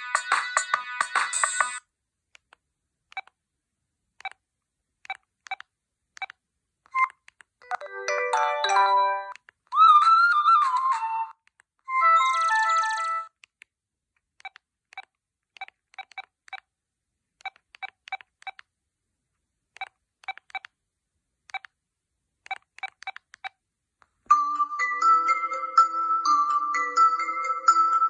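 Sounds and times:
phone key beeps: 0:06.2 - 0:07.8, 0:14.4 - 0:16.6, 0:19.8 - 0:20.7, 0:21.5 - 0:21.7, 0:22.5 - 0:23.6
phone alert melody: 0:07.0 - 0:09.4, 0:11.9 - 0:13.3, 0:24.3 - 0:28.0.

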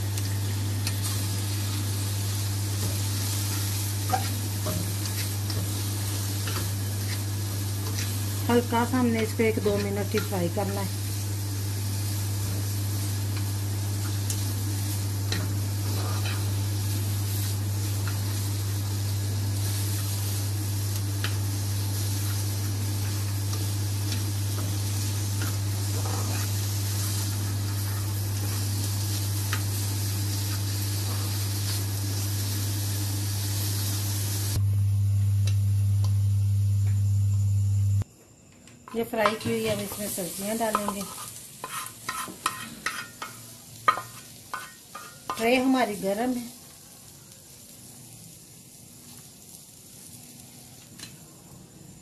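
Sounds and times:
vegetables sizzling in hot oil: 0:00.0 - 0:34.6, 0:38.9 - 0:52.0
steady low hum: 0:00.0 - 0:38.1.

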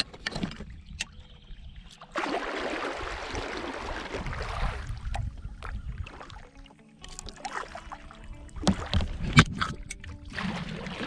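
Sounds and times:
sharp knocks and clicks on hull: 0:00.0 - 0:01.2, 0:08.6 - 0:10.2
splashing water: 0:02.1 - 0:11.0.

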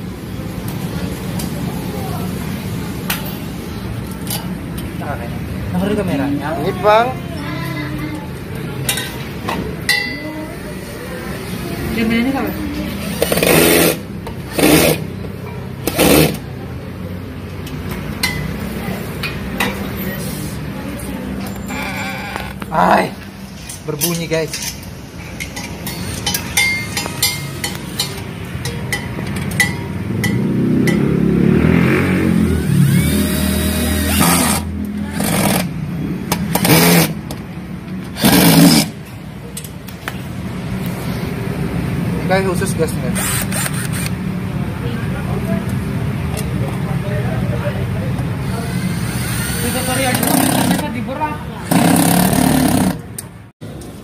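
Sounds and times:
cordless drill driving screws: 0:32.6 - 0:34.6, 0:43.2 - 0:44.1, 0:48.6 - 0:50.8.

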